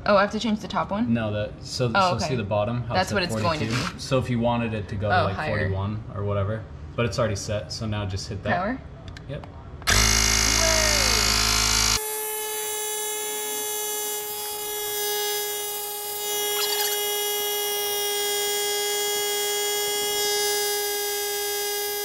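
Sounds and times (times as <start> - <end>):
tire inflator buzzing: 9.8 - 22.0.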